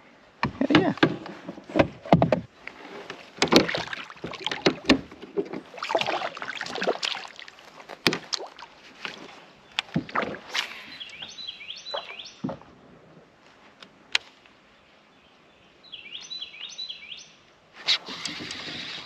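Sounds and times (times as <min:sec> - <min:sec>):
small water splashes: 0:02.6 - 0:11.2
fish splashing into water: 0:03.4 - 0:05.0, 0:05.6 - 0:09.2.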